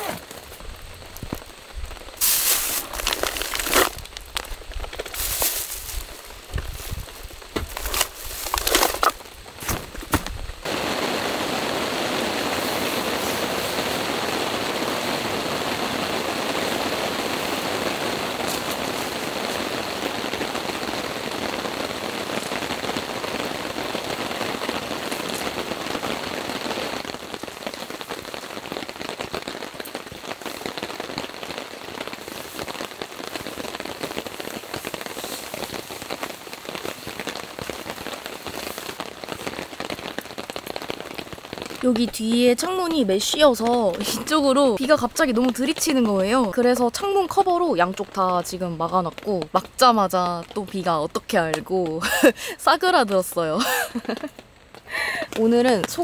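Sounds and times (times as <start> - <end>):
heavy rain on a tarp: 0.0 - 56.0
sharp raindrop hits: 0.0 - 56.0.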